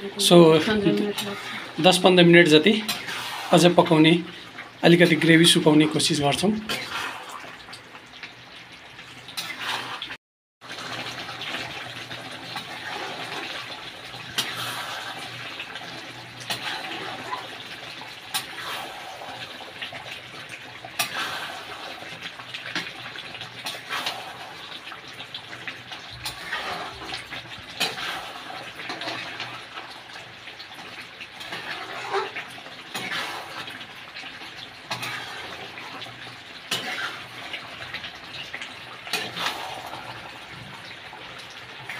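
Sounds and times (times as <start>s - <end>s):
gravy bubbling and sizzling: 0.0s - 41.9s
spatula scraping a pan: 26.2s - 29.2s, 31.4s - 33.7s, 34.9s - 35.8s, 36.7s - 37.3s, 39.1s - 40.2s.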